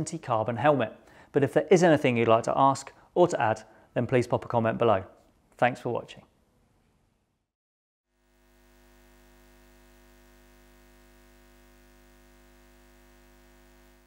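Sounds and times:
faint electronic drone: 8.2 - 14.0.

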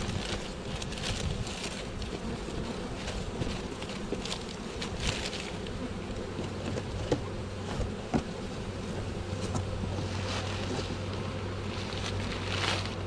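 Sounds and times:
newspaper crinkling: 0.0 - 2.2
bees humming: 0.0 - 13.0.

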